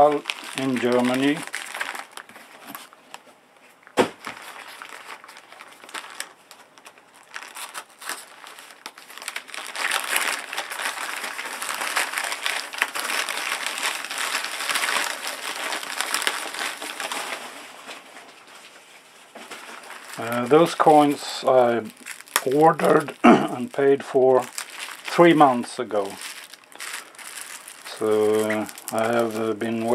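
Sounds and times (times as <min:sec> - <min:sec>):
newspaper crinkling and rustling: 0:00.0 - 0:29.9.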